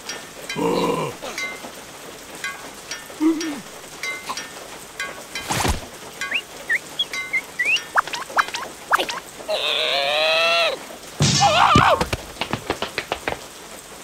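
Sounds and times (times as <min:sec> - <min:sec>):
raindrops ticking: 0:00.0 - 0:14.0
cartoon character chirps and cries: 0:06.7 - 0:10.8.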